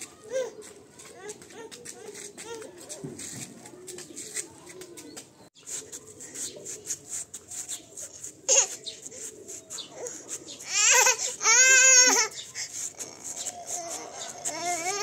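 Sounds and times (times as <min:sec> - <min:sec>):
toddler squealing and crying: 0:09.9 - 0:15.0.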